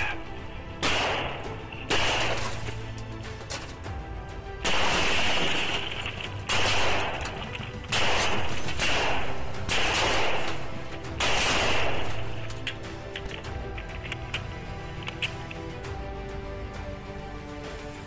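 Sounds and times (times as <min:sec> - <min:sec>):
background music: 0:00.0 - 0:18.0
gunshots: 0:00.8 - 0:03.0, 0:04.6 - 0:12.7.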